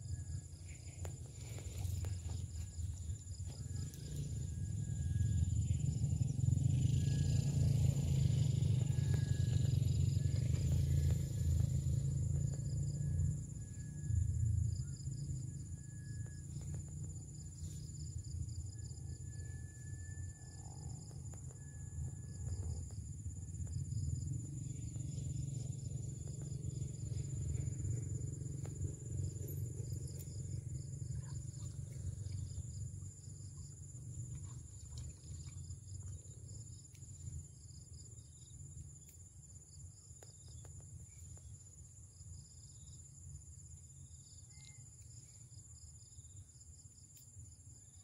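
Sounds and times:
low rumble: 0.0s - 36.7s
insects pulsing chirps: 0.0s - 48.0s
insects whining: 0.0s - 48.0s.

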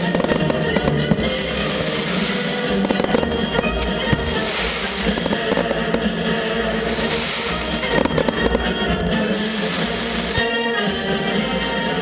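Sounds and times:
firework shells bursting: 0.0s - 10.5s
fireworks crackling: 0.0s - 10.6s
music playing: 0.0s - 12.0s.

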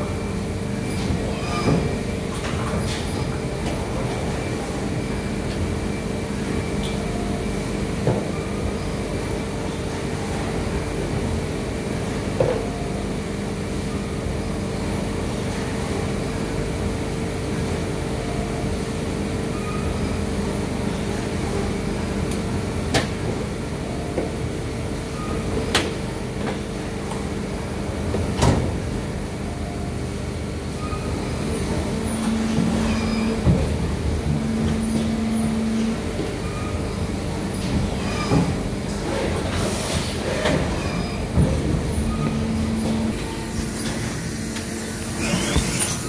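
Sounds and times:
machine humming: 29.0s - 46.0s.

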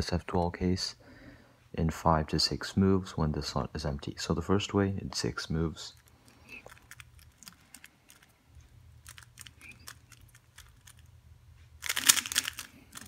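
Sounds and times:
puzzle cube clicking: 6.0s - 11.1s, 11.8s - 13.0s.

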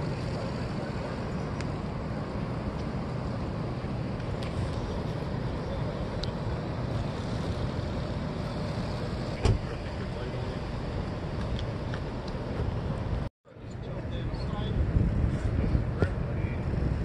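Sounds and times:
low outdoor rumble: 0.0s - 17.0s
loud thump: 9.4s - 9.7s.

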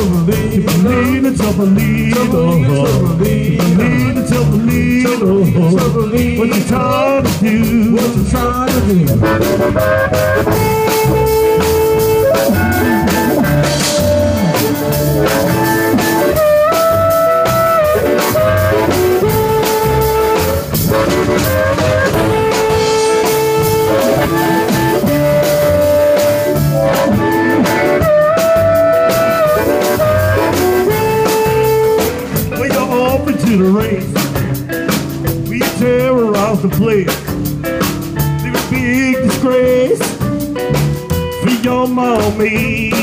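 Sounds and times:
live band playing instrumental: 0.0s - 43.0s.

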